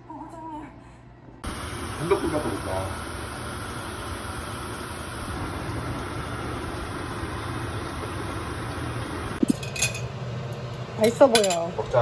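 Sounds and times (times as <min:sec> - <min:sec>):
light hiss: 0:01.4 - 0:09.4.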